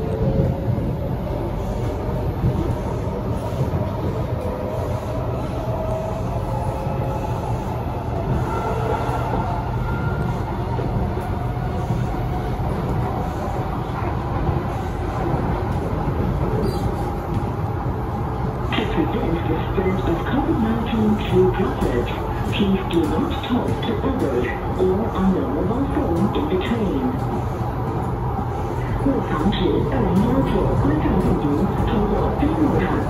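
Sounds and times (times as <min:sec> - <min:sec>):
train wheels rumbling on rail: 0:00.0 - 0:33.0.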